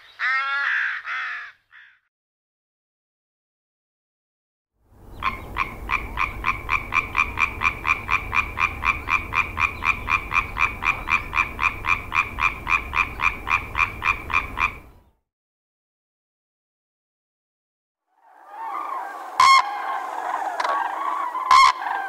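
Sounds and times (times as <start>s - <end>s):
tree frog croaking: 5.2s - 14.9s, 19.4s - 22.0s.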